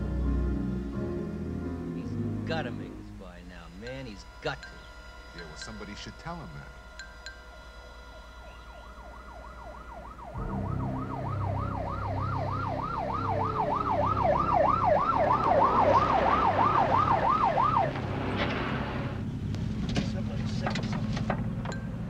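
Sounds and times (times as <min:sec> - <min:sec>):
low engine rumble: 0:00.0 - 0:22.0
ambulance siren yelping: 0:03.5 - 0:19.4.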